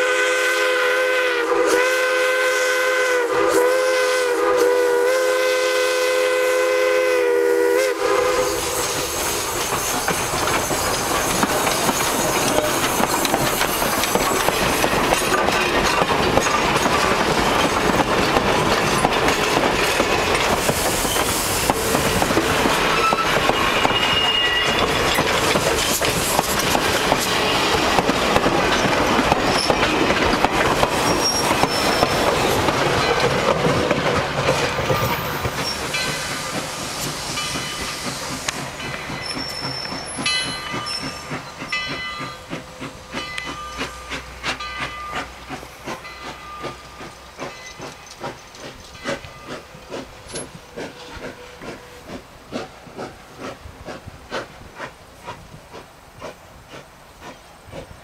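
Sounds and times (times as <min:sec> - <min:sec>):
train wheels clattering on rails: 0:07.7 - 0:58.0
wheels clicking on track: 0:08.5 - 0:58.0.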